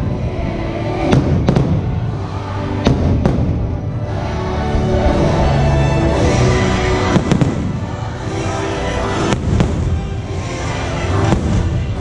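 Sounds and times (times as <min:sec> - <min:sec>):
show music: 0:00.0 - 0:12.0
fireworks bursting: 0:01.0 - 0:04.0, 0:06.4 - 0:08.4, 0:09.0 - 0:12.0.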